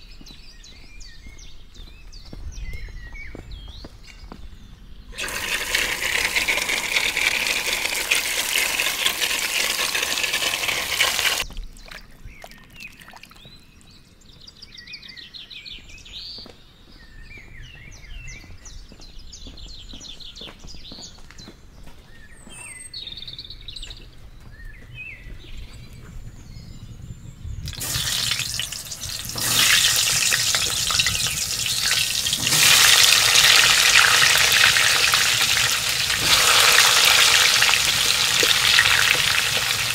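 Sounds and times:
birds chirping trills: 0.0s - 39.9s
hose spraying water into bowl: 5.2s - 11.4s, 27.7s - 39.9s
potatoes frying in hot oil: 5.2s - 11.4s, 27.7s - 39.9s.

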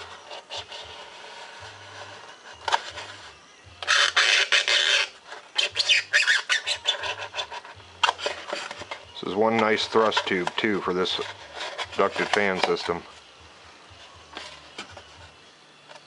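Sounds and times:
knife cutting foam: 0.0s - 13.0s.

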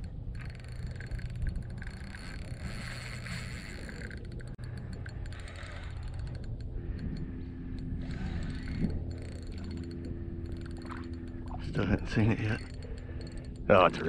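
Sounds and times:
fishing reel clicking: 0.0s - 14.0s.

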